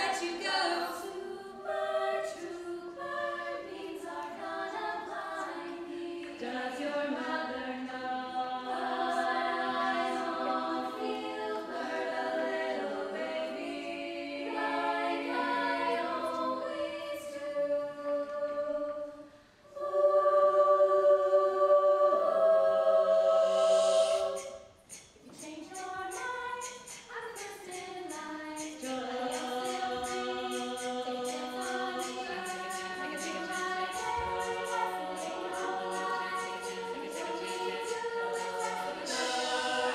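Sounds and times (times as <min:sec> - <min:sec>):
women singing in harmony: 0:00.0 - 0:39.9
quick ticking beat: 0:24.9 - 0:39.9.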